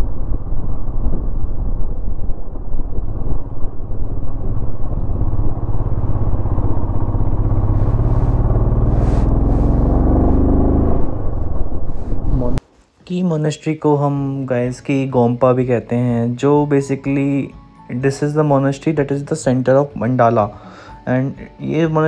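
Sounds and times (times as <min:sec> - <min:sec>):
motorcycle engine running: 0:00.0 - 0:12.6.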